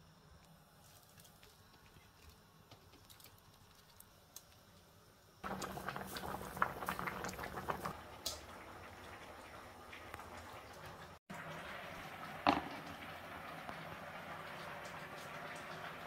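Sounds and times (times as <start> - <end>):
pot of liquid boiling: 5.4 - 16.0.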